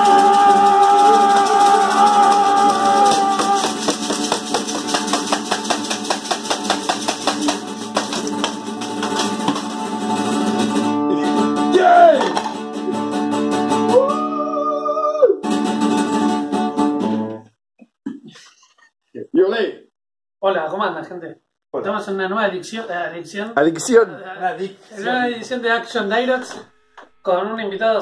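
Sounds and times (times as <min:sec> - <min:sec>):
men singing a jingle: 0:00.0 - 0:04.6
hand percussion: 0:00.0 - 0:10.2, 0:12.1 - 0:12.7
acoustic guitar strumming: 0:00.0 - 0:14.4, 0:15.4 - 0:17.4.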